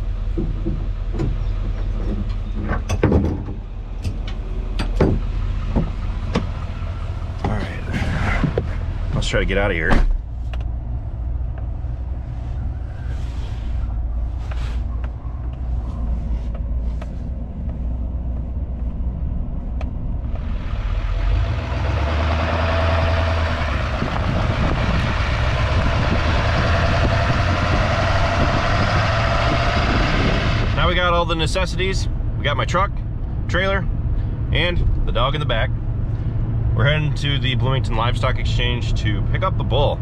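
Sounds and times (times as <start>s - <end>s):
trailer rattles and knocks: 0.0s - 10.8s
road and wind noise: 0.0s - 40.0s
truck engine rumble: 0.0s - 40.0s.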